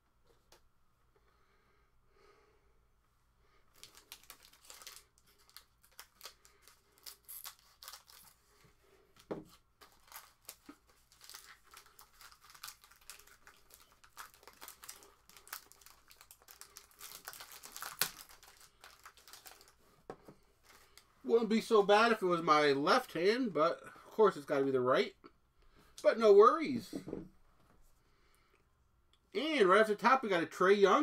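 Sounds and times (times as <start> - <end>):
foil wrapper crinkling: 3.7 - 8.4, 9.8 - 19.8.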